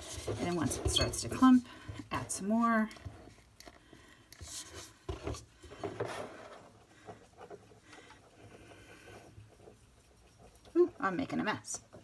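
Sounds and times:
stick scraping glass bowl: 0:00.0 - 0:03.0.

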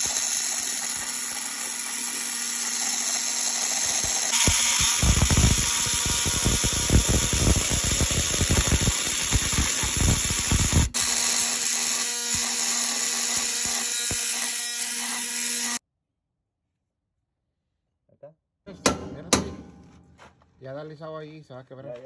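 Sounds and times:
multi-tool grinding through steel: 0:00.0 - 0:15.8.

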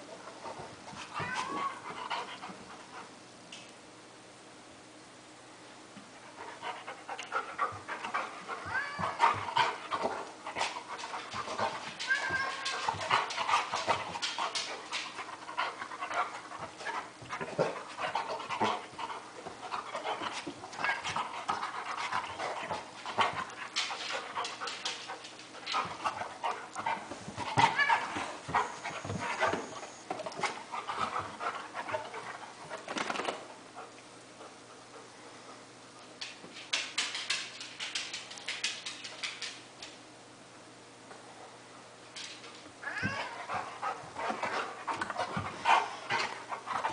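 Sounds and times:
dog panting hard: 0:06.4 - 0:11.9, 0:30.4 - 0:32.8, 0:43.3 - 0:46.9.

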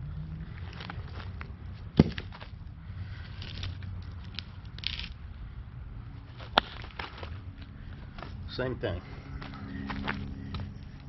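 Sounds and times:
footsteps: 0:09.0 - 0:11.0.

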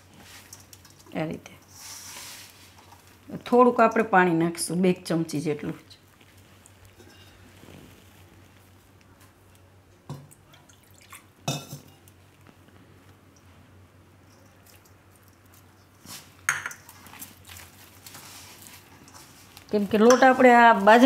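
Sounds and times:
metal bowl clinking: 0:11.4 - 0:12.1, 0:16.4 - 0:17.0, 0:18.9 - 0:21.0.

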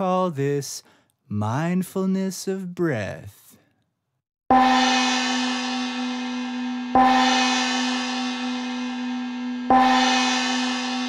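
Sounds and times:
gong ringing: 0:04.5 - 0:11.0.

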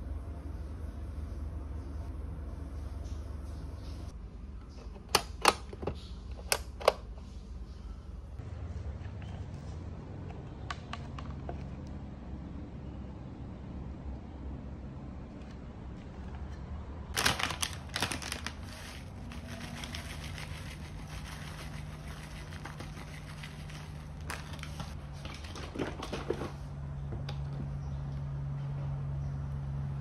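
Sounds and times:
plastic bag crinkling: 0:17.1 - 0:25.0.

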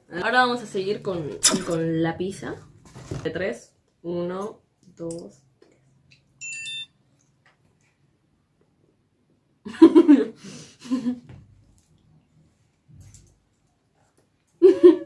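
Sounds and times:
muffled chuckle with full mouth: 0:14.6 - 0:15.0.

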